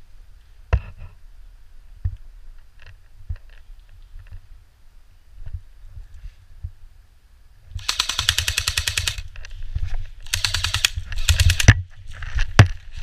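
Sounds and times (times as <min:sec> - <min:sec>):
airsoft rifle firing bursts: 0:07.8 - 0:09.3, 0:10.2 - 0:11.8.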